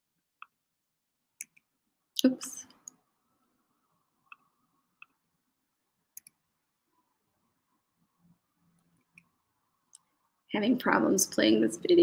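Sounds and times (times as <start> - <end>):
computer mouse clicks: 6.1 - 6.4.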